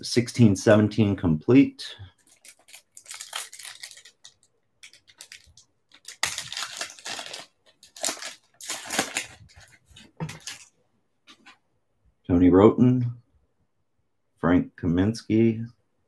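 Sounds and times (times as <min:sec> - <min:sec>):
foil wrapper tearing and crinkling: 0:02.2 - 0:10.7.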